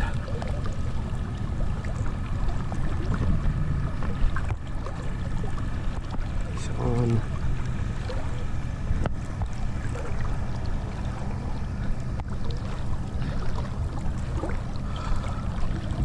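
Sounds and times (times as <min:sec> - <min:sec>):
low rumble of wind: 0:00.0 - 0:16.0
seawater sloshing at microphone: 0:00.0 - 0:16.0.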